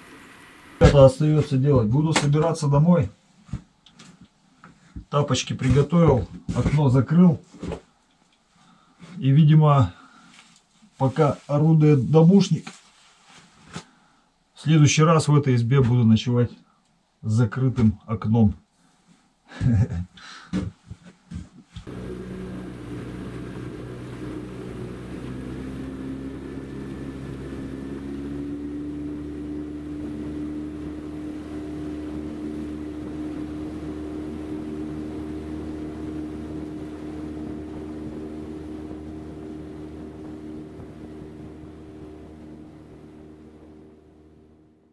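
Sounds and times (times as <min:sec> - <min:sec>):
boat motor running: 0:21.8 - 0:44.9.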